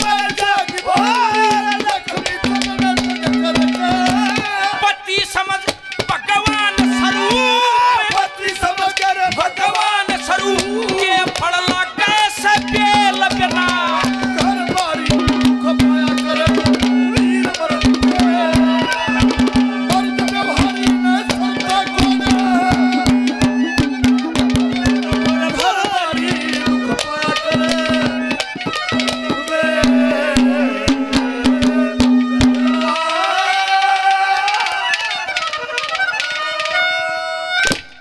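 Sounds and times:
wavering melody line: 0:06.2 - 0:08.4, 0:12.6 - 0:33.7
rapid hand drum strokes: 0:10.1 - 0:33.1.

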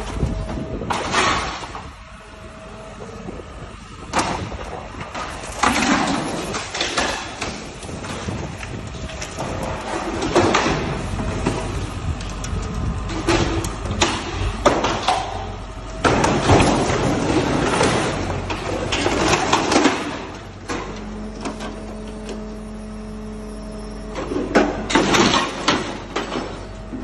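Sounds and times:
low machine rumble: 0:00.0 - 0:27.0
metal crunching and clattering: 0:04.1 - 0:22.3, 0:24.2 - 0:27.0.

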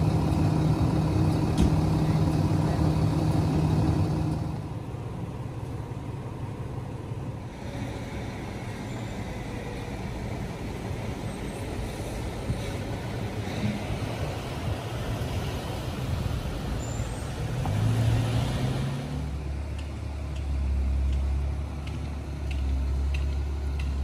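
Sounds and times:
engine idling low hum: 0:00.0 - 0:17.7
street noise: 0:00.0 - 0:24.0.

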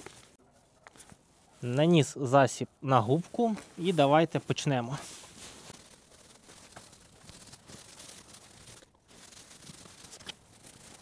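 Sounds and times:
foam sponge rubbing on panel: 0:05.0 - 0:11.0.

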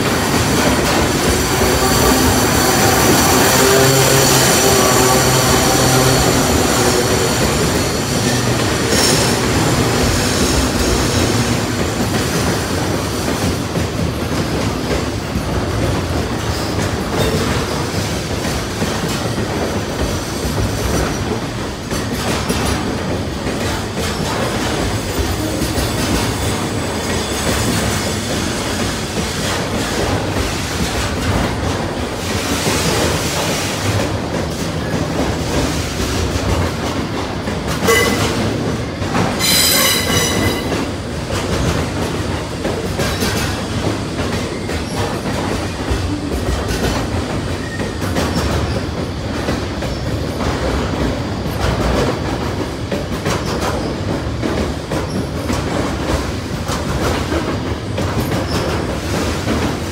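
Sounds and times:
diesel locomotive engine hum: 0:00.0 - 0:39.4
train wheel squeal: 0:00.2 - 0:13.4, 0:16.4 - 0:18.2, 0:24.0 - 0:31.0, 0:37.7 - 0:41.0, 0:43.0 - 0:50.4, 0:53.3 - 0:54.1, 0:55.0 - 0:55.6, 0:58.2 - 0:59.3.

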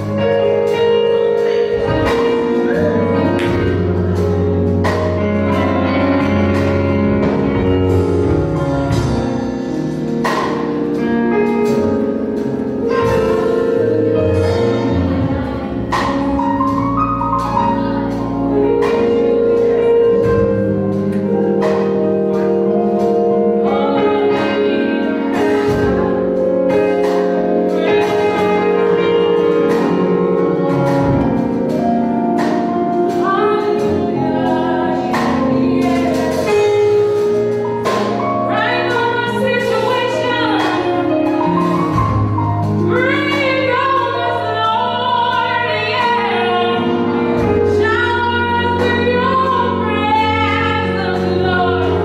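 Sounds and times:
gospel band playing slow song: 0:00.0 - 0:52.0
held keyboard chords: 0:00.0 - 0:52.0
group of women singing: 0:33.6 - 0:37.0.

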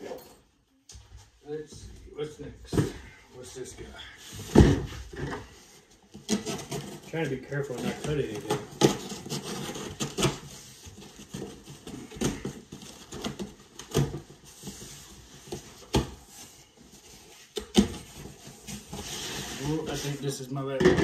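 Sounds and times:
cardboard scraping and rustling: 0:06.2 - 0:20.3.

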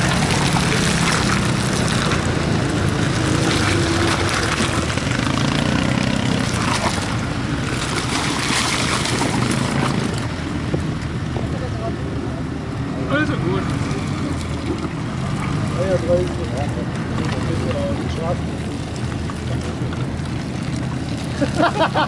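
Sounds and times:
rough rushing noise: 0:00.0 - 0:11.7.

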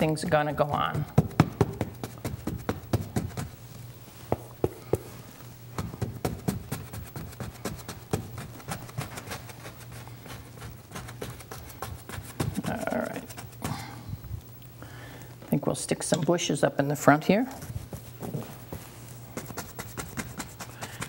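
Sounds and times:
low steady hum: 0:00.0 - 0:21.0
paintbrush tapping on canvas: 0:04.3 - 0:05.2.

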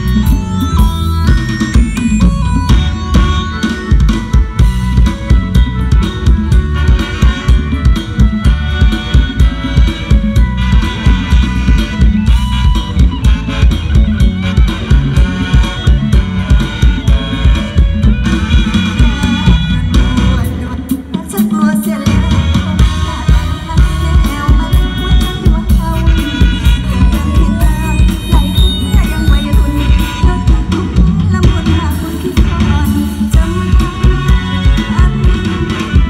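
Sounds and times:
live band music over sound system: 0:00.0 - 0:36.0.

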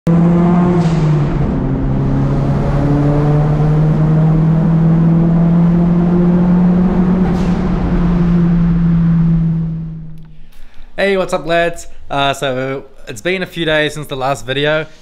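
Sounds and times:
car engine at steady revs: 0:00.1 - 0:10.9
road noise: 0:00.1 - 0:13.0.

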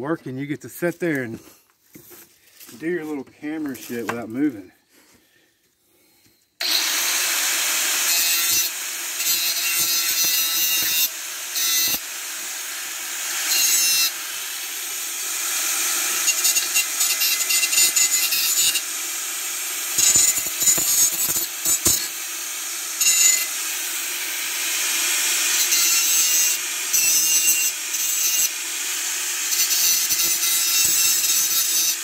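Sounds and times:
power grinder grinding metal: 0:06.6 - 0:32.0.

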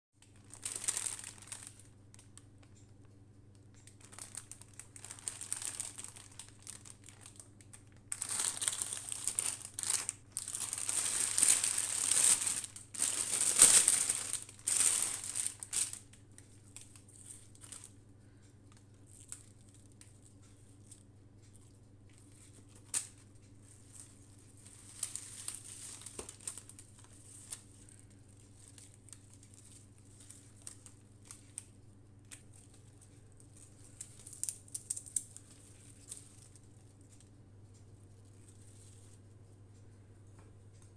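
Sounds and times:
plastic bag crinkling: 0:00.2 - 0:02.7, 0:03.8 - 0:18.0, 0:22.3 - 0:37.1.

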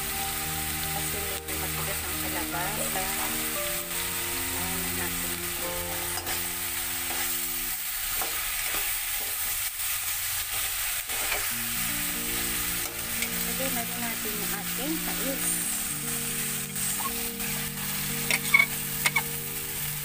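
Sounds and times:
soft background music: 0:00.0 - 0:08.5, 0:11.5 - 0:20.0
vegetables sizzling in a wok: 0:00.0 - 0:20.0
metal spatula scraping pan: 0:18.2 - 0:19.3.

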